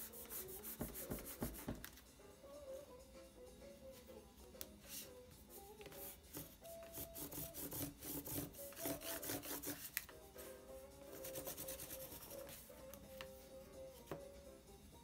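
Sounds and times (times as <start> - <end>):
oil pastel scratching cardboard: 5.9 - 10.0, 11.1 - 12.7.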